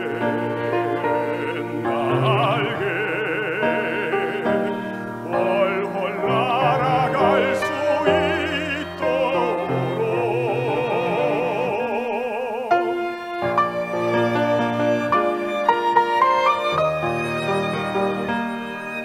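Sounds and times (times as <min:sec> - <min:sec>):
man singing operatically: 0:00.0 - 0:13.2
violins: 0:00.0 - 0:19.0.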